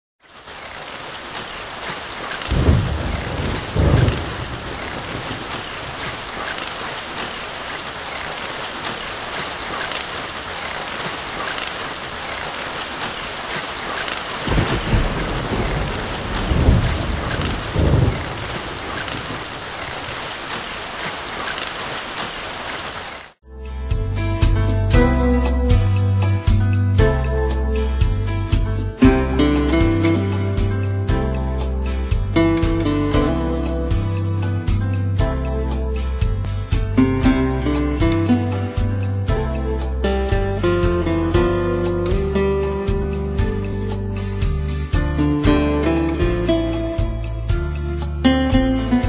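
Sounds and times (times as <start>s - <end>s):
heavy rain pouring: 0.2s - 23.4s, 24.4s - 49.0s
thunder rumbling: 1.8s - 9.2s, 9.9s - 21.0s.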